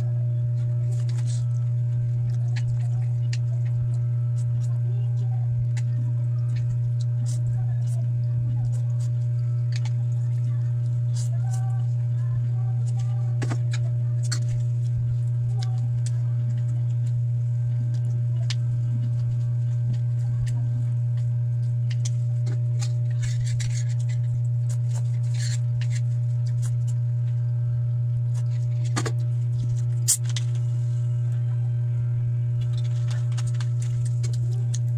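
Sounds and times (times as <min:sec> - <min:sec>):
loud low hum: 0:00.0 - 0:34.9
eating noises: 0:28.2 - 0:31.7.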